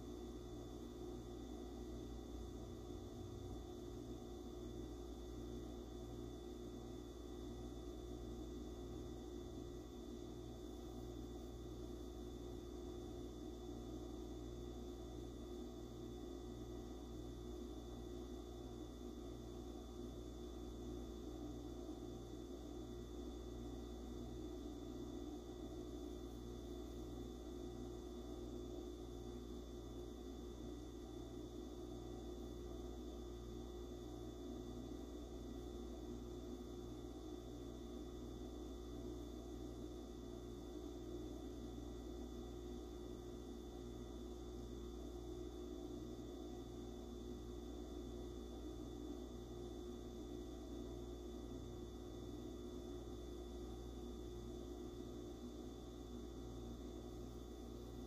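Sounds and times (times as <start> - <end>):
electrical hum: 0.0 - 58.0.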